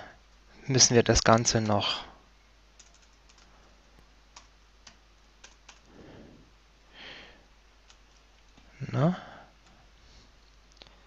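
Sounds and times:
keyboard keystrokes: 0:02.8 - 0:03.5
soft breathing sounds: 0:05.8 - 0:07.6, 0:08.6 - 0:11.0.

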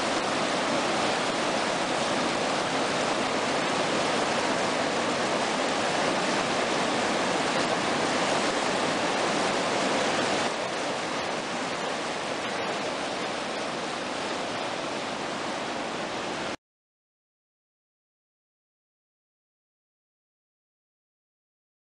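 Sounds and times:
river rapids rushing: 0:00.0 - 0:16.6.

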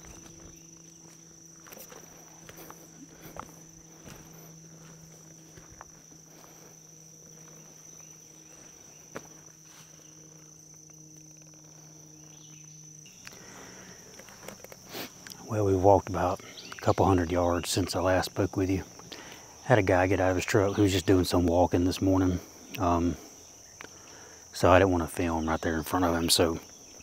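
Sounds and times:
footsteps: 0:00.0 - 0:12.4
faint low hum: 0:00.0 - 0:27.0
high-pitched insect chorus: 0:00.0 - 0:27.0.

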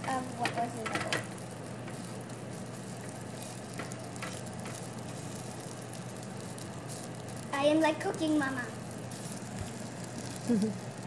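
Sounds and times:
eggs sizzling in a pan: 0:00.0 - 0:11.0
spatula tapping pan: 0:03.7 - 0:04.8.

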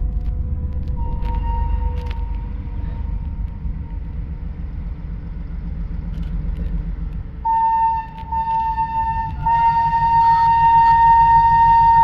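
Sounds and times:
diesel train engine rumble: 0:00.0 - 0:12.0
train horn: 0:00.8 - 0:04.0, 0:07.4 - 0:12.0.

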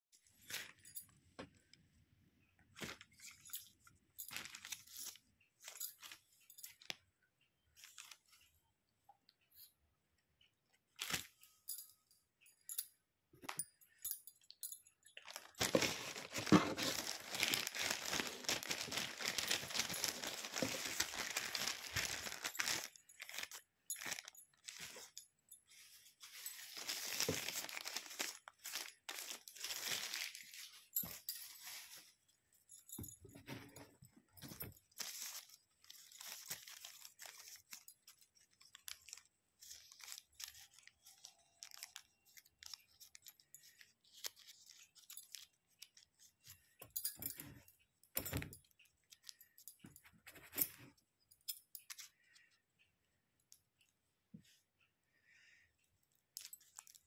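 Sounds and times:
plastic and paper crinkling: 0:02.8 - 0:07.0, 0:07.8 - 0:08.4, 0:15.1 - 0:32.3, 0:34.4 - 0:47.0, 0:56.3 - 0:57.0.

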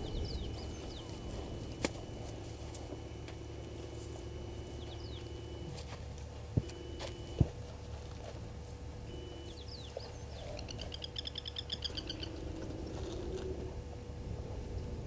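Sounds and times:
bird calling: 0:00.0 - 0:05.8, 0:09.1 - 0:13.8
low hum and rumble: 0:00.0 - 0:15.0.

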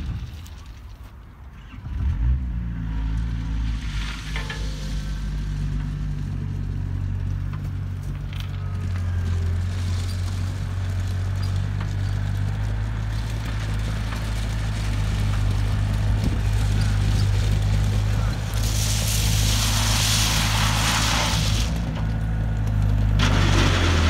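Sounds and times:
tyres on gravel: 0:00.0 - 0:24.0
diesel engine droning: 0:01.4 - 0:24.0
faint metal clanks: 0:04.2 - 0:06.0.

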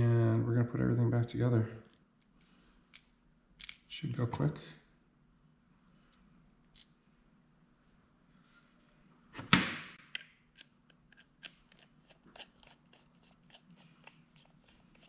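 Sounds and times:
parts clattering: 0:01.8 - 0:03.9, 0:06.6 - 0:07.1
small metal parts clicking: 0:01.8 - 0:03.9, 0:06.6 - 0:07.0, 0:10.1 - 0:11.9.

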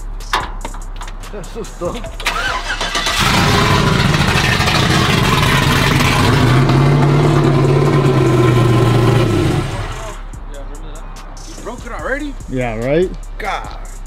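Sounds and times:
pickup truck engine revving: 0:02.3 - 0:10.2.

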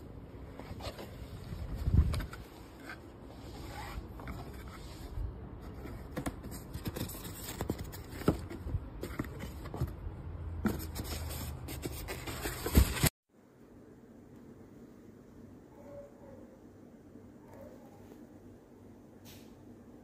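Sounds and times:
cardboard and plastic rustling: 0:00.4 - 0:13.2.

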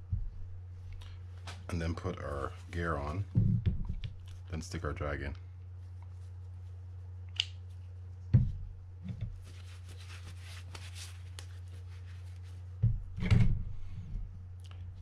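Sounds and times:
low steady hum: 0:00.0 - 0:15.0
paper towel rubbing glove: 0:05.8 - 0:12.8.

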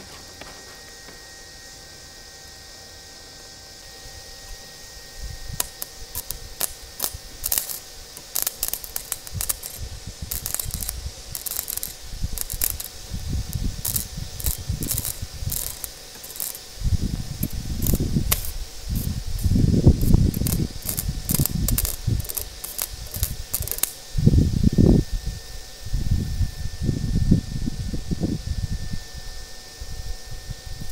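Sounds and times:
welding arc crackling: 0:04.4 - 0:24.0.

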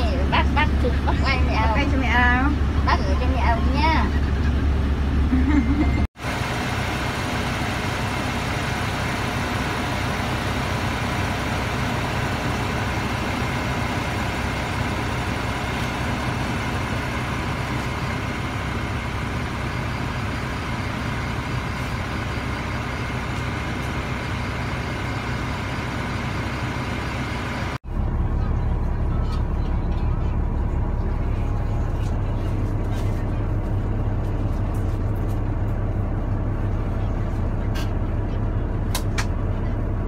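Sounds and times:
bus engine idling: 0:00.0 - 0:40.0.

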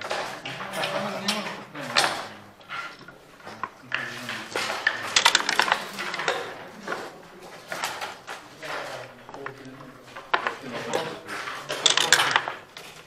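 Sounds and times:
dice and checkers clicking on board: 0:00.0 - 0:13.0.

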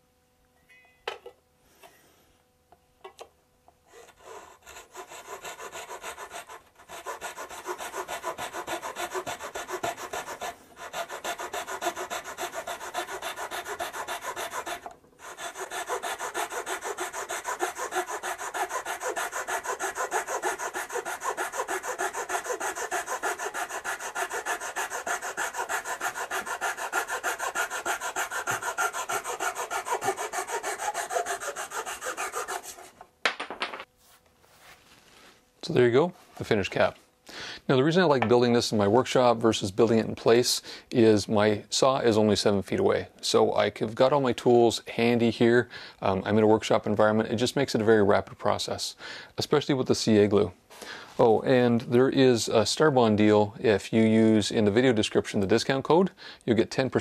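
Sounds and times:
hand saw sawing wood: 0:03.9 - 0:33.0.

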